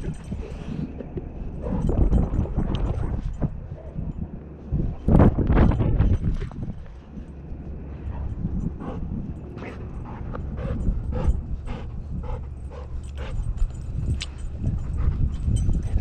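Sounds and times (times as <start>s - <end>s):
low rumble of handling noise: 0.0s - 16.0s
dog panting: 7.9s - 16.0s.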